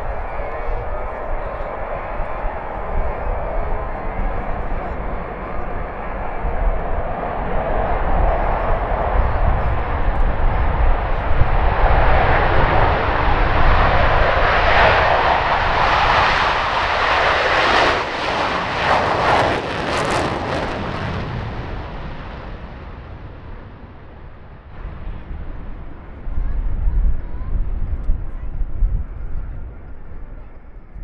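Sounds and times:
crackling jet roar: 0.0 - 26.8
jet aircraft passing: 0.0 - 27.2.

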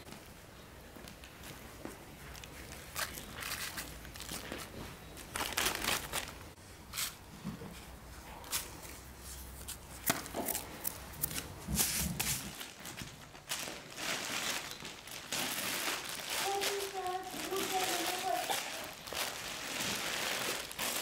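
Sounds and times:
plastic bag crinkling: 2.4 - 6.6, 12.4 - 21.0.

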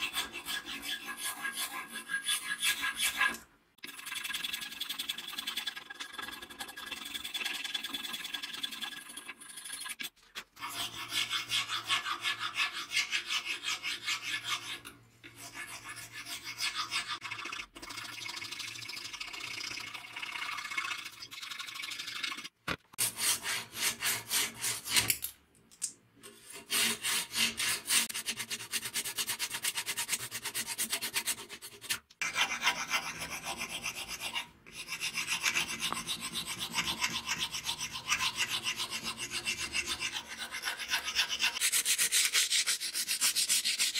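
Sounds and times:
hand file rasping on metal: 0.0 - 3.4, 10.6 - 17.2, 23.0 - 25.1, 26.3 - 43.9.

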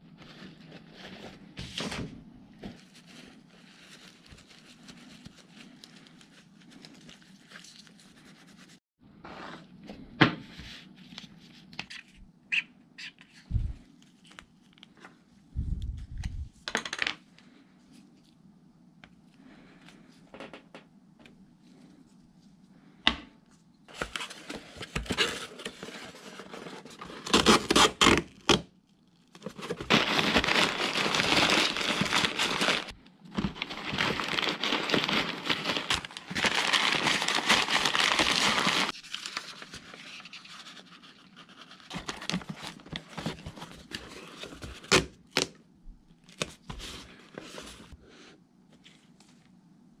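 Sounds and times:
packing paper crinkling: 23.9 - 45.0.

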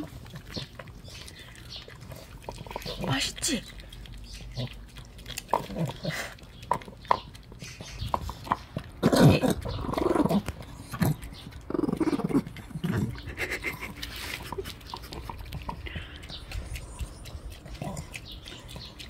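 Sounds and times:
dog chewing peas: 0.0 - 19.0
dog growling: 4.5 - 6.4, 8.5 - 18.7.

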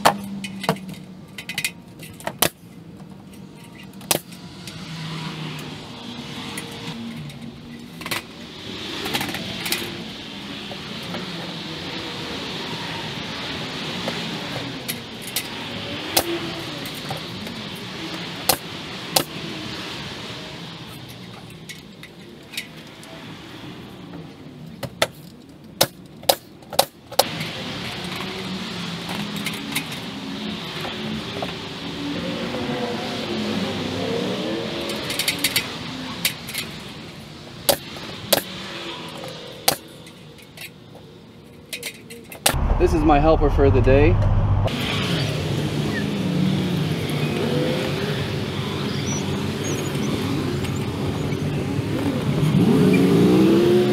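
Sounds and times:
low hum: 42.5 - 44.9.

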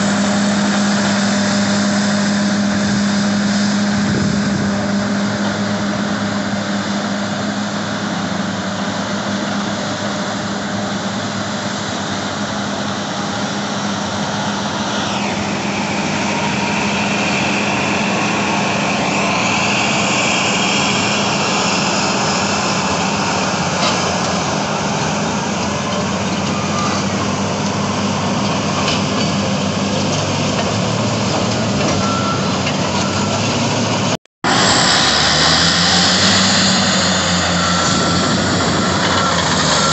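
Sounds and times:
heavy machine diesel engines droning: 0.0 - 39.9
high whine: 9.4 - 28.5, 32.0 - 39.9.

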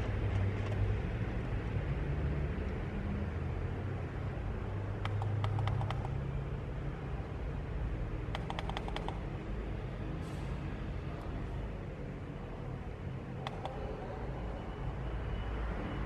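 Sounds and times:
dial and button clicks: 5.0 - 6.2, 8.3 - 9.2, 13.4 - 13.9.

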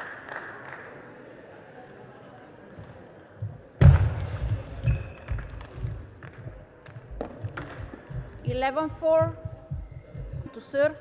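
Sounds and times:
ball clicking and bouncing: 2.7 - 10.6.

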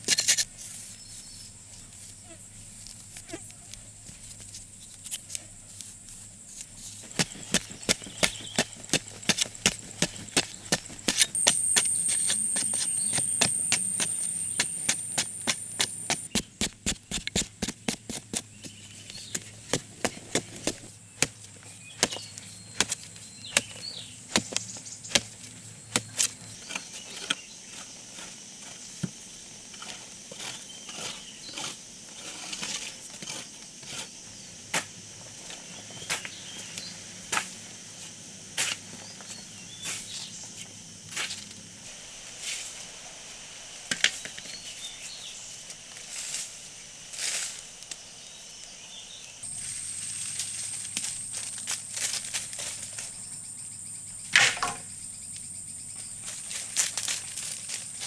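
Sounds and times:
hoe chopping dry earth: 6.6 - 34.1, 54.3 - 54.9.

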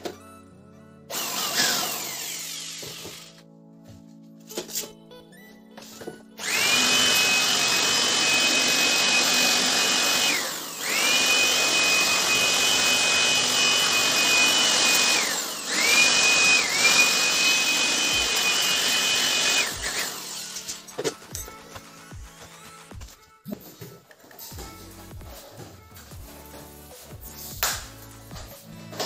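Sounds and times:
electric blower-vacuum whining: 6.4 - 20.8.

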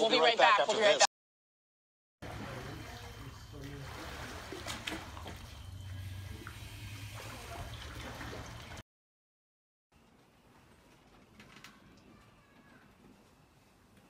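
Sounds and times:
pool water sloshing: 2.2 - 8.8.

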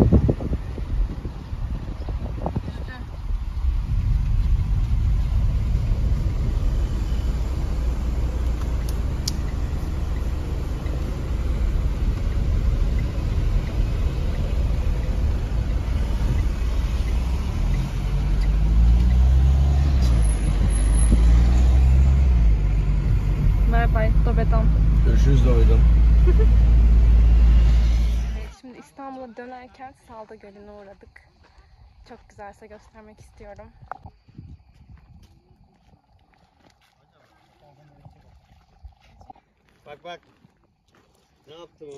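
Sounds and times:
car engine: 0.0 - 28.6
road noise: 0.0 - 41.9.

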